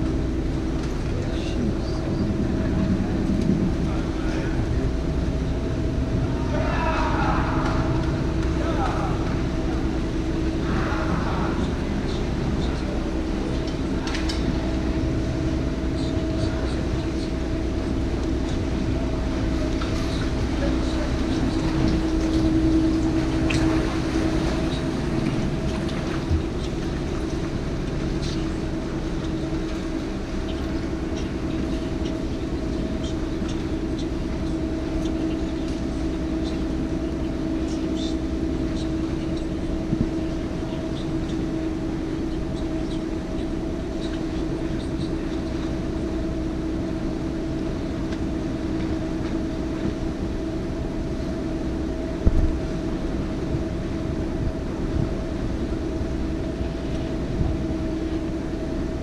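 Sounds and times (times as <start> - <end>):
boat motor humming: 0.0 - 59.0.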